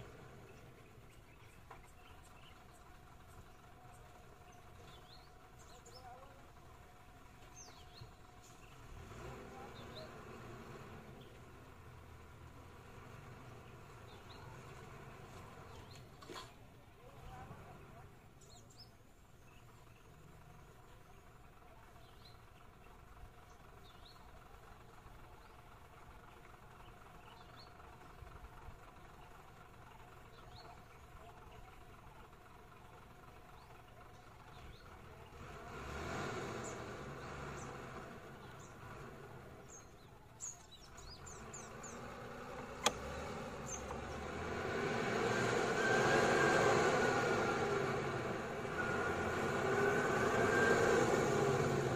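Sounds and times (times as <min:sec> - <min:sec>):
small birds chirping: 0:00.0 - 0:51.9
vehicle engine idling: 0:00.0 - 0:51.9
sharp click: 0:42.8 - 0:43.1.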